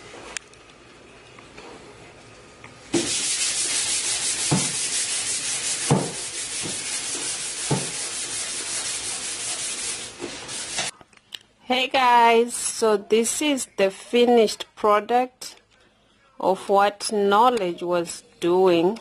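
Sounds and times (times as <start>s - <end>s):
sandpaper rubbing on wood: 3.0s - 10.9s.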